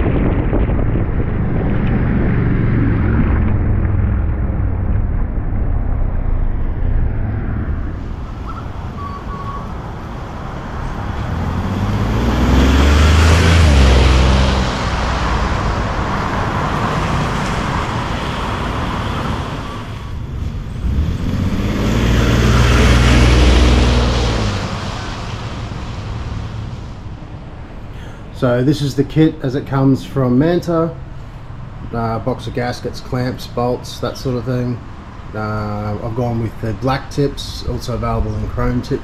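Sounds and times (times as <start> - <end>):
pickup truck driving past: 0.0 - 28.2.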